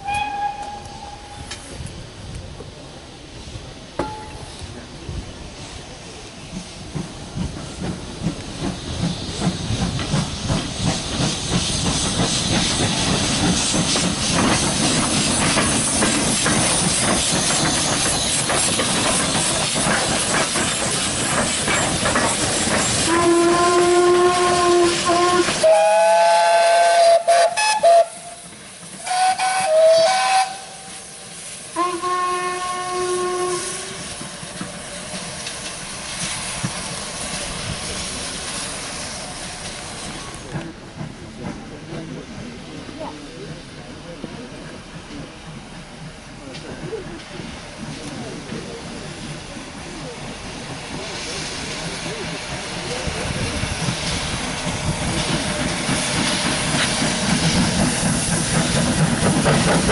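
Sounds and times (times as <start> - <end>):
steam whistle blasts: 0.0 - 1.5, 23.0 - 28.4, 29.0 - 34.1
steam hiss: 0.0 - 59.9
rhythmic locomotive exhaust beats: 5.8 - 59.9.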